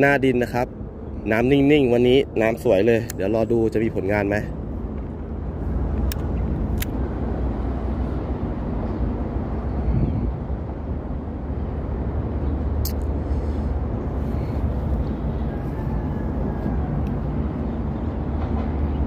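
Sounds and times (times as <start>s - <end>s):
low outdoor rumble: 0.0s - 19.0s
sharp click: 6.0s - 7.0s, 12.8s - 13.1s.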